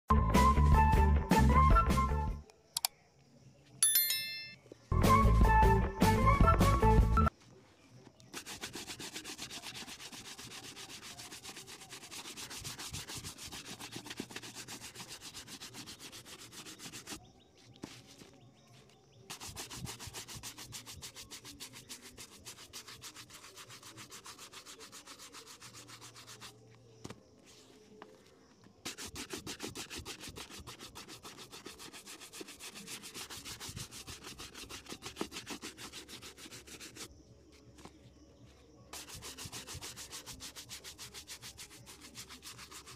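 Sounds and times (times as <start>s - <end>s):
brush scrubbing a leather shoe: 8.0s - 28.1s, 28.8s - 37.9s, 38.9s - 42.9s.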